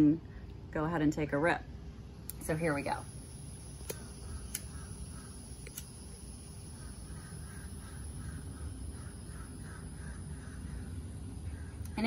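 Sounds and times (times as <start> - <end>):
lighter clicking: 3.2 - 6.4
distant crows cawing: 4.2 - 5.6, 6.6 - 12.0.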